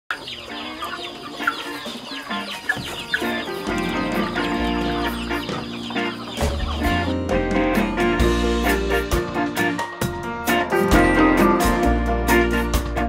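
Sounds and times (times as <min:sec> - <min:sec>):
chickens clucking: 0:00.1 - 0:09.9
music with deep bass: 0:03.6 - 0:13.0.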